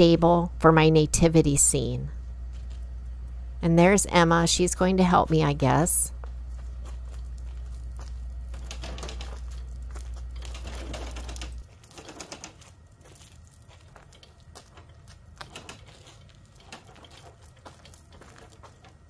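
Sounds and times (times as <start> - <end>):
low steady hum: 0.0 - 19.0
table saw stand rattling on pavers: 8.5 - 9.6, 10.3 - 12.7, 14.1 - 19.0.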